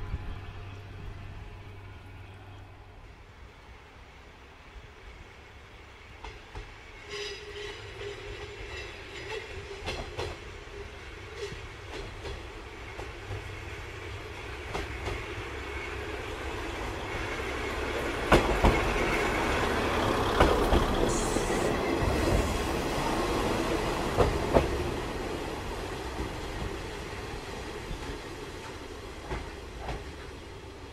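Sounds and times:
diesel railcar approaching: 0.0 - 30.9
train wheels knocking over rail joints: 18.2 - 19.2.

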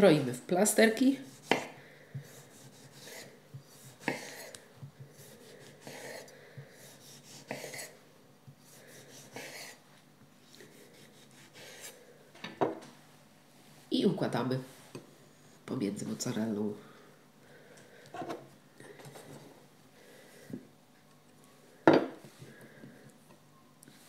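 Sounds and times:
knife sawing through tomato: 1.2 - 8.0, 8.7 - 9.8, 10.6 - 12.0.

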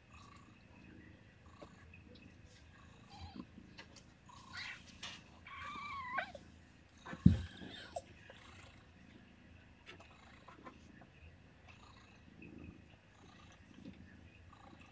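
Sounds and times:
kittens mewing: 4.4 - 6.4.

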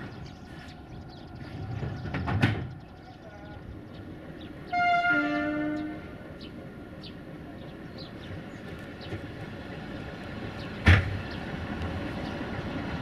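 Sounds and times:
rail rumble with chirps: 0.0 - 13.0
loud clunk: 1.8 - 2.8
locomotive horn: 4.7 - 6.2.

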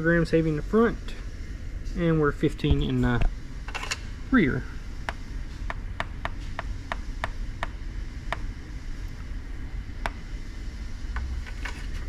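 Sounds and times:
low background hum: 0.0 - 12.0
stylus tapping on touchscreen: 5.0 - 8.5.

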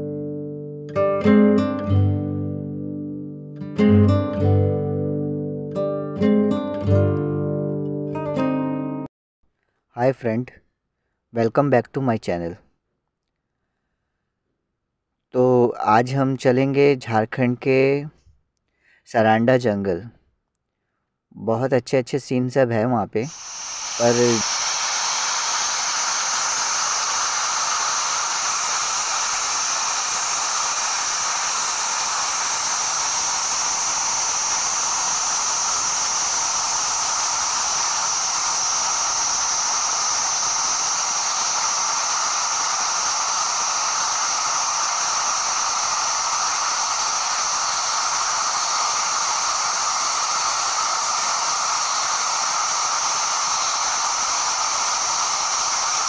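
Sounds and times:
waterfall rushing over rocks: 23.3 - 56.0.

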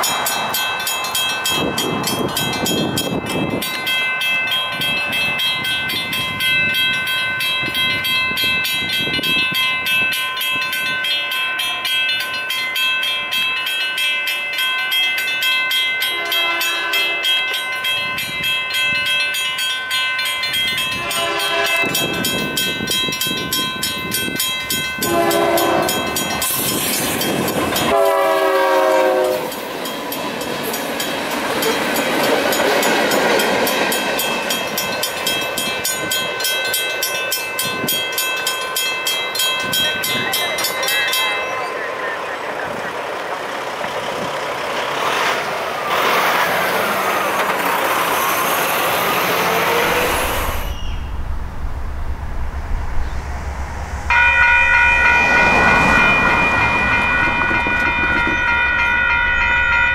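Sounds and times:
railroad crossing bell ringing: 0.0 - 52.2, 53.5 - 59.9
train horn blasts: 16.0 - 17.5, 20.9 - 22.2, 25.0 - 26.3, 27.8 - 29.6
train wheels rumbling: 16.0 - 59.9.

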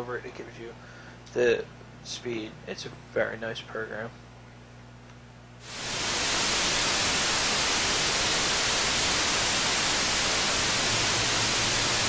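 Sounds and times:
tv static hiss: 5.6 - 12.0.

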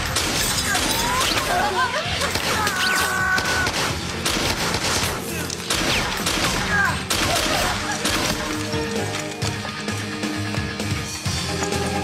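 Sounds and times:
gunshots: 0.0 - 8.7
action background music: 0.0 - 12.0.

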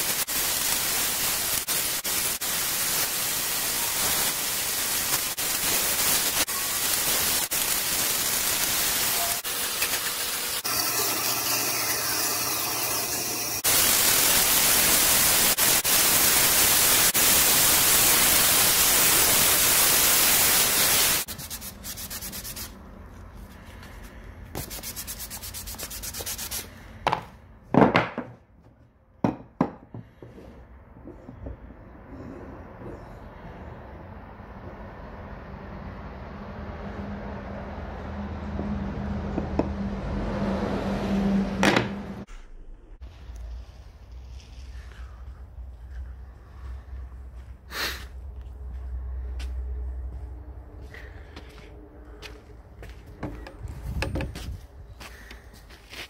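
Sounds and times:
band saw cutting wood: 8.0 - 13.7
sanding disc on wood: 21.2 - 22.7, 24.6 - 26.7.

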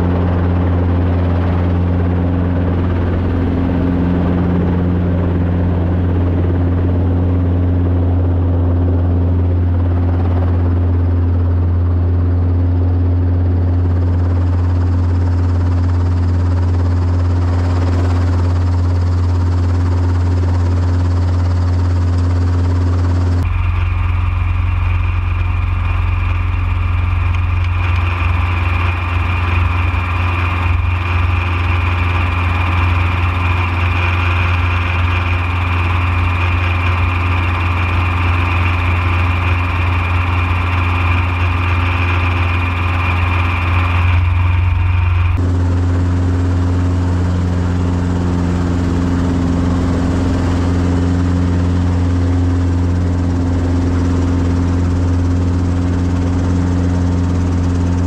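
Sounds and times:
dull low cabin hum: 0.0 - 58.0
helicopter idling drone: 0.0 - 58.0.

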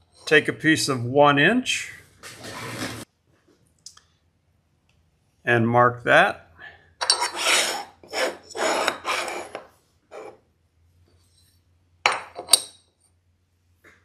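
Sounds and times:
marker scratching on metal: 7.0 - 10.4.

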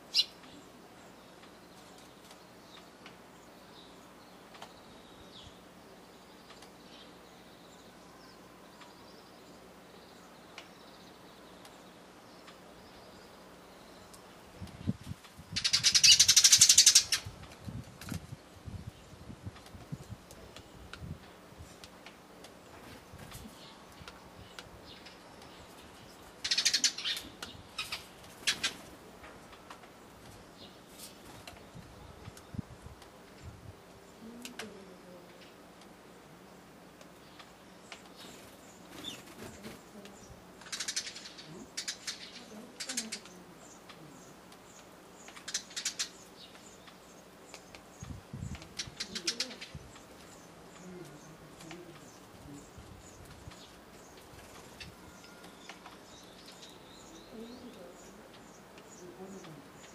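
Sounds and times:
wings fluttering: 21.8 - 24.2, 25.7 - 32.4, 37.4 - 43.4, 45.2 - 56.7
faint bird chirps: 37.3 - 59.9
bird wings fluttering: 38.0 - 41.2.

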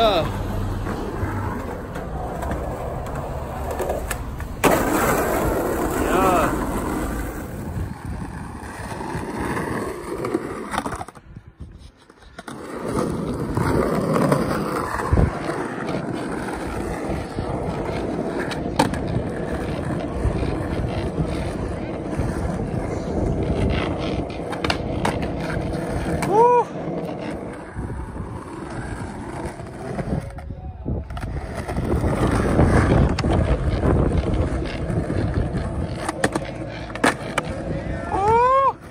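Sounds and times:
skateboard clacks: 0.0 - 38.9
skateboard wheels rolling on asphalt: 0.0 - 38.9.

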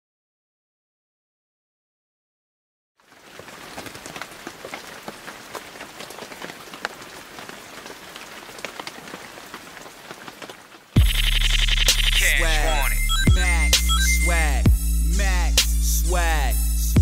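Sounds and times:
raindrop ticks: 3.0 - 14.0
rain falling: 3.0 - 16.6.

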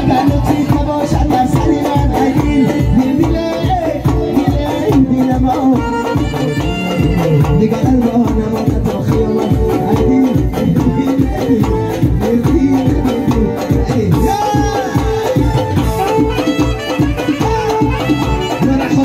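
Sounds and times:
electronic keyboard accompaniment: 0.0 - 19.0
man singing into a microphone: 0.0 - 19.0.

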